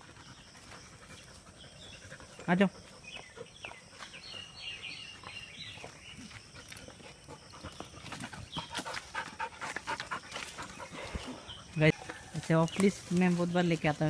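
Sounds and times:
dogs panting: 0:00.0 - 0:12.0
leaves and twigs rustling: 0:04.0 - 0:14.0.

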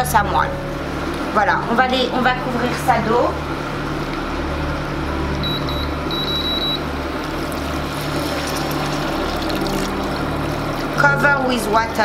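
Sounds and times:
low steady hum: 0:00.0 - 0:12.0
short high beeps: 0:05.4 - 0:06.8
water pouring into a pan: 0:07.3 - 0:11.0.

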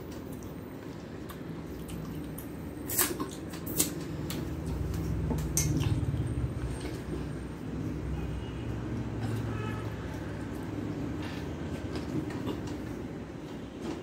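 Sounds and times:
wet chewing and lip smacks: 0:00.1 - 0:07.1.

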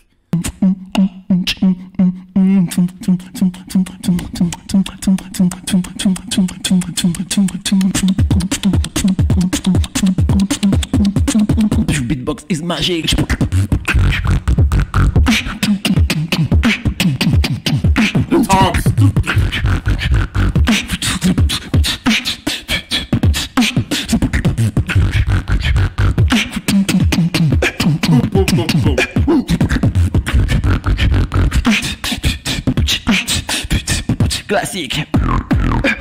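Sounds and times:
beatboxing drum sounds: 0:00.0 - 0:36.0
hummed bass notes: 0:13.2 - 0:15.8, 0:18.3 - 0:20.8, 0:35.1 - 0:36.0.

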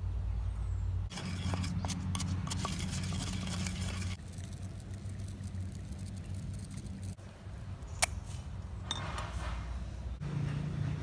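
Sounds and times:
low steady rumble: 0:00.0 - 0:11.0
skin crackling and sizzling on fire: 0:01.1 - 0:07.2.

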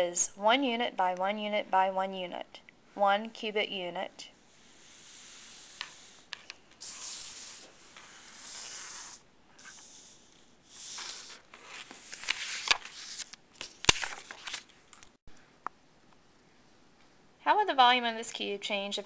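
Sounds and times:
paper rustling on tabletop: 0:04.7 - 0:10.0, 0:10.7 - 0:14.7.

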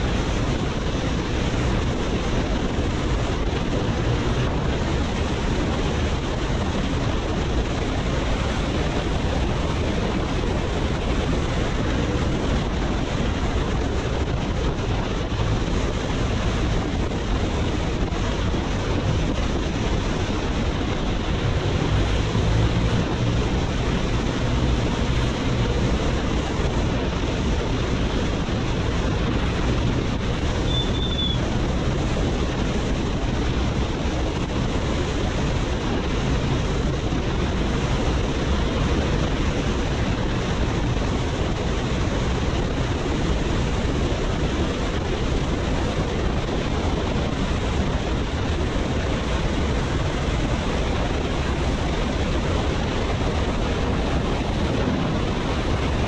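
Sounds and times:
wind roaring over microphone: 0:00.0 - 0:56.0.

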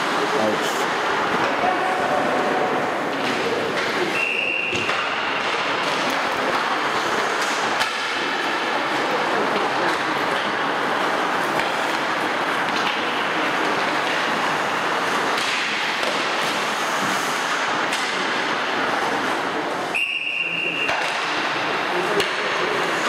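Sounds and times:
clacks of sticks and pucks: 0:00.0 - 0:23.0
rushing ice rink ambience: 0:00.0 - 0:23.0.

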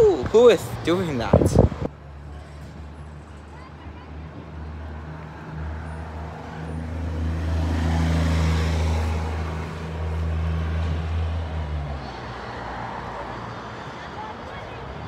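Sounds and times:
vehicle engine droning past: 0:05.8 - 0:12.3.

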